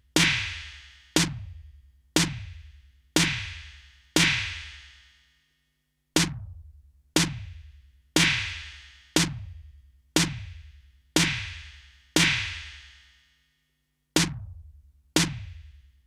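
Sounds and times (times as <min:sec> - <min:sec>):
drum machine snare hits with reverb: 0:00.2 - 0:01.6, 0:02.2 - 0:02.6, 0:03.2 - 0:03.6, 0:04.2 - 0:04.7, 0:06.2 - 0:06.6, 0:07.2 - 0:09.6, 0:10.2 - 0:10.6, 0:11.2 - 0:12.7, 0:14.2 - 0:14.6, 0:15.2 - 0:15.7.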